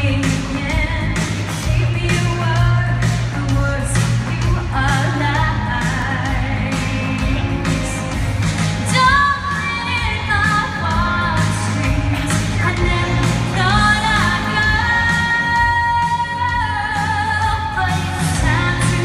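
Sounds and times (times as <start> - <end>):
woman singing pop song: 0.0 - 19.0.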